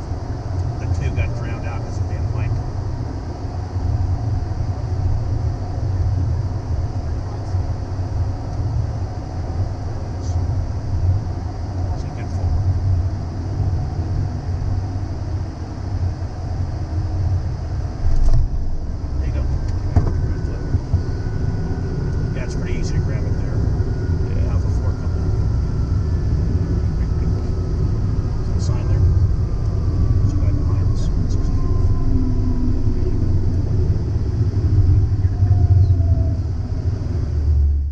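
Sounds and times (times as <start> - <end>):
faint whine: 0.0 - 37.9
low rumble of engine and airflow: 0.0 - 37.9
thump: 20.0 - 20.2.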